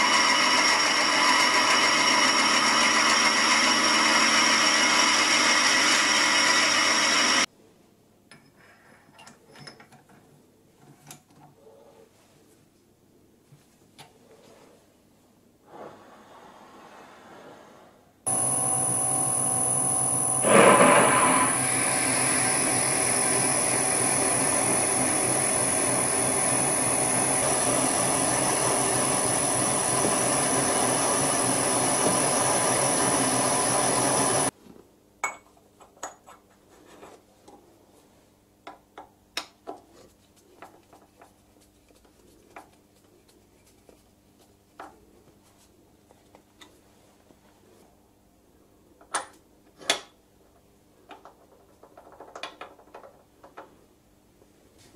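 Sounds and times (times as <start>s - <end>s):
lathe whining: 0.0s - 7.5s, 18.3s - 34.5s.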